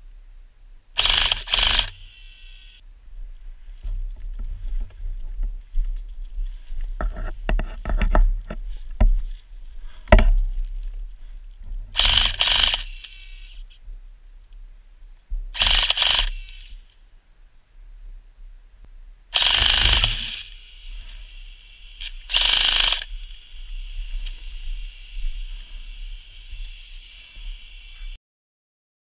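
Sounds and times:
airsoft gun full-auto bursts: 1.0s - 2.8s, 12.0s - 13.6s, 15.6s - 16.8s, 19.4s - 23.2s
knocks and rustling: 3.8s - 9.4s.

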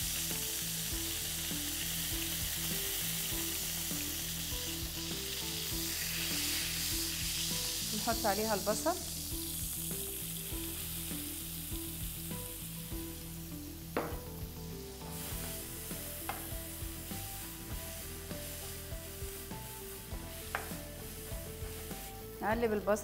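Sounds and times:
onion sizzling in a frying pan: 0.0s - 23.0s
wooden spoon knocking on pan: 14.0s - 14.4s, 16.2s - 16.6s, 20.4s - 20.9s.

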